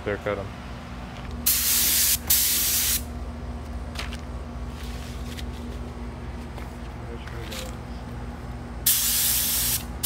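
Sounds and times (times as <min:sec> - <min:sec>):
steady low hum: 0:00.0 - 0:10.0
paint spray gun hissing: 0:01.5 - 0:03.0, 0:08.9 - 0:09.9.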